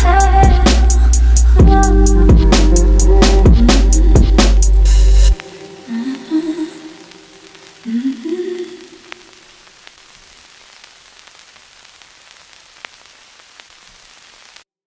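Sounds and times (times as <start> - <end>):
background music: 0.0 - 8.8
recording hiss: 0.0 - 14.7
faint sharp clicks: 7.0 - 14.6.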